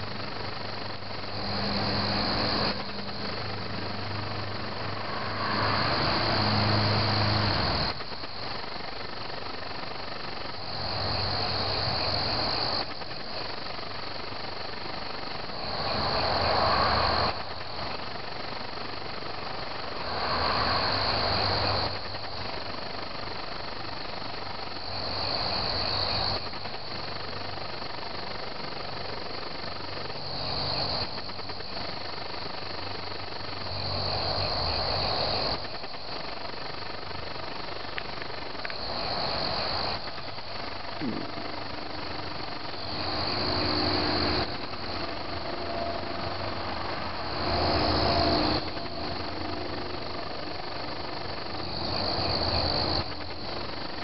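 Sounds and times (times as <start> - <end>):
crickets chirping: 0.0 - 54.0
low rough sound: 41.0 - 42.3.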